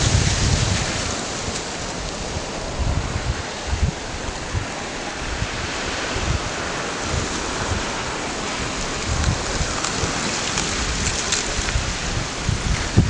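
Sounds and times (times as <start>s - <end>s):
river ice grinding: 0.0s - 13.0s
wind buffeting microphone: 0.0s - 13.0s
small ice crackles: 8.8s - 12.0s.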